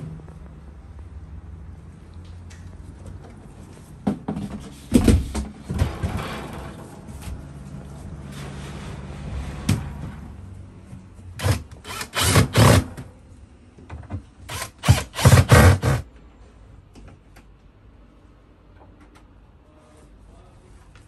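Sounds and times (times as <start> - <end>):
cordless drill driving screws: 11.4 - 12.9, 14.5 - 16.0.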